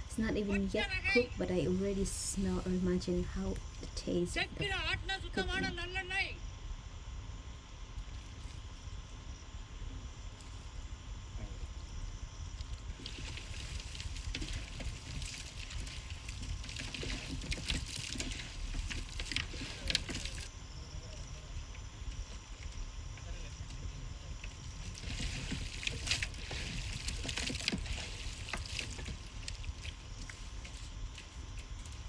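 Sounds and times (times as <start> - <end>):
low steady rumble: 0.0 - 32.0
hands mixing wet food: 12.7 - 20.5, 24.4 - 32.0.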